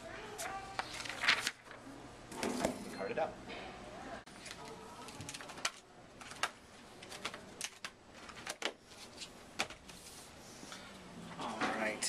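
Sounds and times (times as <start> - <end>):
paper rustling: 0.3 - 1.8, 4.3 - 10.3.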